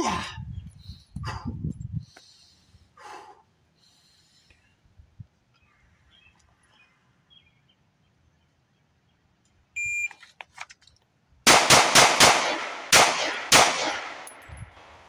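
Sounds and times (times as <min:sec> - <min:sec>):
holster rustle and clicks: 0:10.1 - 0:11.1
pistol shots with echo: 0:11.5 - 0:15.0.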